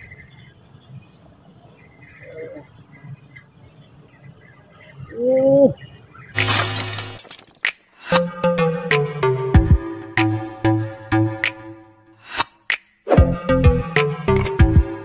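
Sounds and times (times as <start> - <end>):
insect drone with pulsing trill: 0.0 - 6.4.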